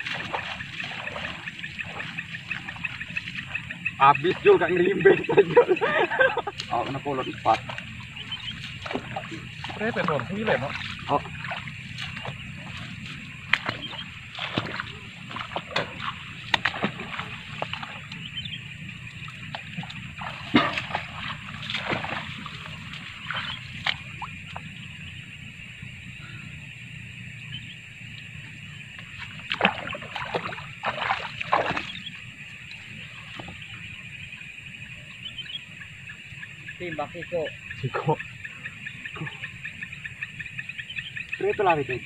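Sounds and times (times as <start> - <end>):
shallow water splashing: 0.0 - 25.2, 28.8 - 34.5.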